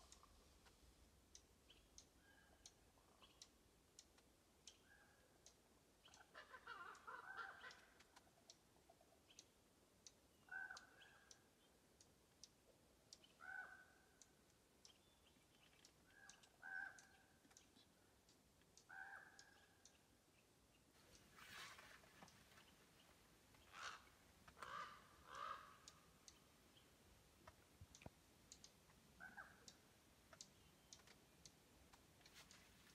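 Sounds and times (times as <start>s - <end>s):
faint clicks: 0.0s - 32.9s
bird calls: 1.7s - 3.5s, 6.0s - 9.5s, 10.3s - 11.8s, 13.2s - 18.1s, 18.8s - 27.0s, 28.0s - 31.6s.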